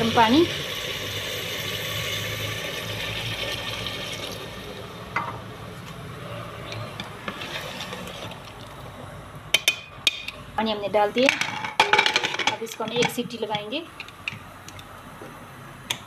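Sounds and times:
hot water pouring splash: 0.2s - 4.8s.

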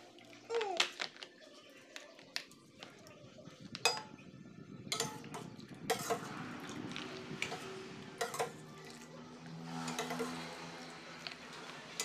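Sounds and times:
metal ladle clinking on pot: 3.8s - 4.2s, 4.9s - 6.4s, 7.4s - 8.8s, 9.8s - 10.6s.

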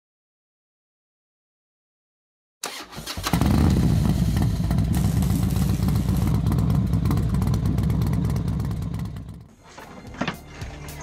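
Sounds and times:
motorcycle engine running hard: 3.2s - 9.5s.

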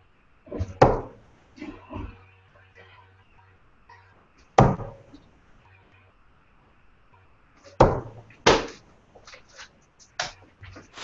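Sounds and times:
darts striking dartboard: 0.6s - 1.2s, 4.6s - 5.2s, 7.7s - 8.8s.

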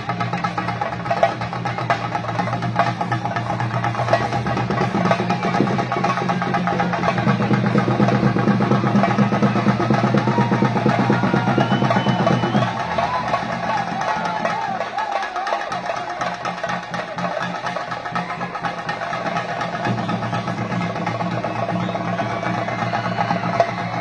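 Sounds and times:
drums beaten in fast rhythm: 0.0s - 24.0s.

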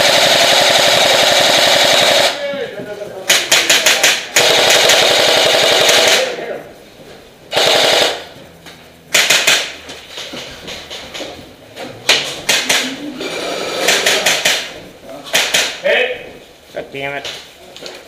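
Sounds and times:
airsoft guns automatic fire: 0.0s - 2.4s, 3.3s - 6.4s, 7.5s - 8.4s, 9.1s - 9.8s, 12.5s - 12.9s, 13.5s - 15.8s.

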